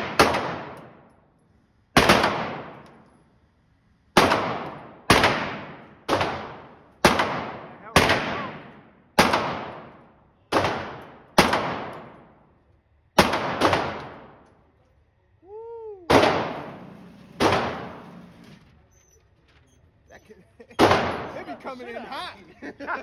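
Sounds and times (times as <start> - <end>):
pistol shots echoing indoors: 0.0 - 1.1, 2.0 - 3.1, 4.2 - 12.4, 13.2 - 14.6, 16.1 - 18.1, 20.8 - 21.4.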